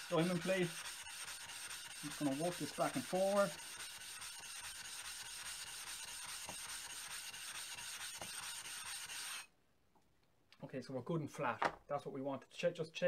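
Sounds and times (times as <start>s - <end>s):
stone scraping on metal plate: 0.0s - 9.5s.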